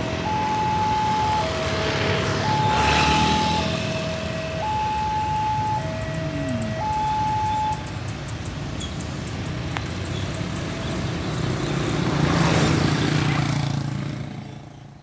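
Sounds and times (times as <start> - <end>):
light truck crossing railway tracks: 0.0 - 15.0
motorcycles running: 0.0 - 15.0
two-tone warning signal: 0.1 - 7.9.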